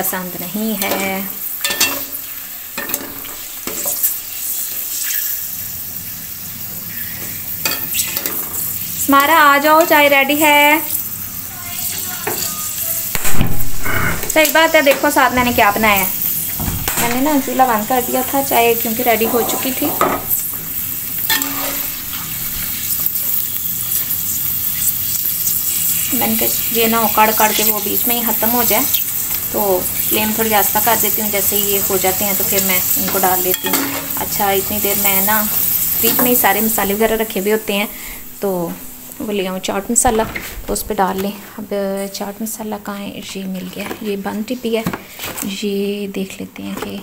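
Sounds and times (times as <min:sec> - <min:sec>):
food sizzling in hot oil: 0:00.0 - 0:40.0
wire skimmer clinking on pot: 0:33.0 - 0:34.2.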